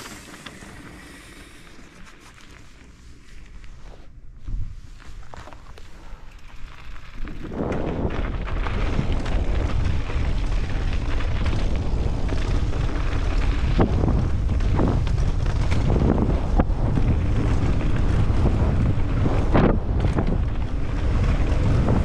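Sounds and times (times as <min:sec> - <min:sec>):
tyres crunching on gravel: 0:04.4 - 0:22.0
bike knocking on bumps: 0:06.7 - 0:22.0
wind buffeting microphone: 0:07.2 - 0:22.0.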